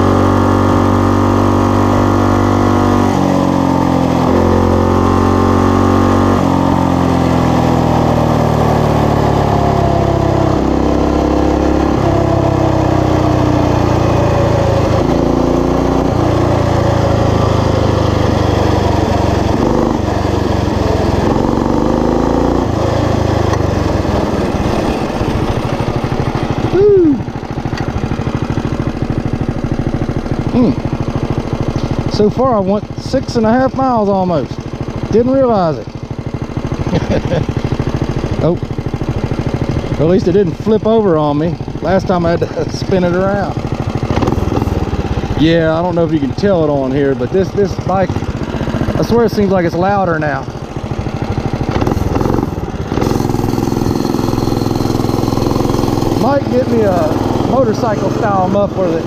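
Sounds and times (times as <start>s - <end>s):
mini bike engine running: 0.0s - 59.0s.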